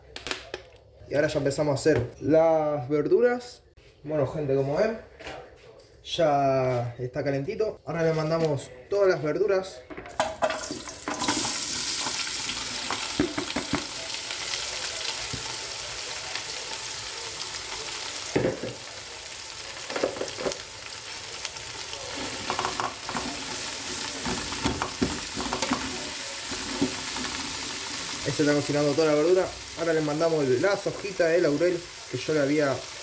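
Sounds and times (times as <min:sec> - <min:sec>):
vegetables sizzling in oil: 0:10.2 - 0:33.0.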